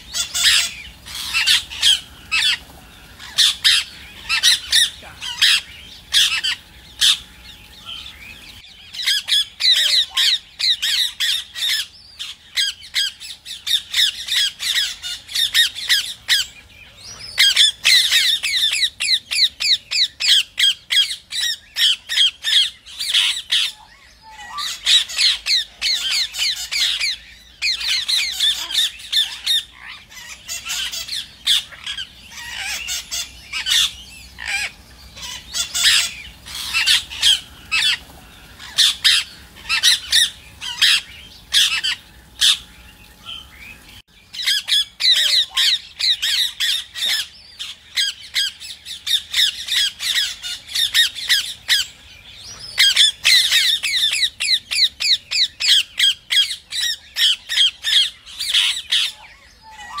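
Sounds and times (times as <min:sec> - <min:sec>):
parakeet squawking: 0:00.0 - 0:02.6, 0:03.2 - 0:07.3, 0:07.9 - 0:16.5, 0:17.2 - 0:38.0, 0:38.6 - 0:42.7, 0:44.3 - 0:51.9, 0:52.7 - 1:00.0.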